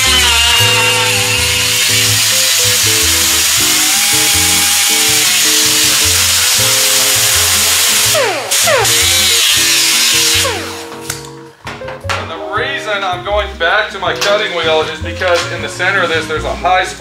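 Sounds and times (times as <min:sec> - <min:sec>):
cut-off wheel grinding steel: 0:00.0 - 0:11.2.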